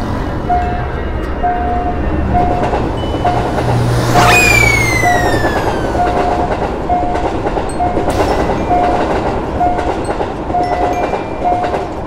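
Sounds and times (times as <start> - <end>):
train rumbling over rails: 0.0 - 12.0
crossing warning signal tone: 0.5 - 10.0.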